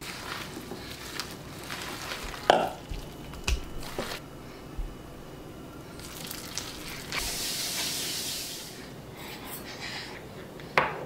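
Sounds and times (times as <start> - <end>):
batter sizzling in hot oil: 5.9 - 8.8.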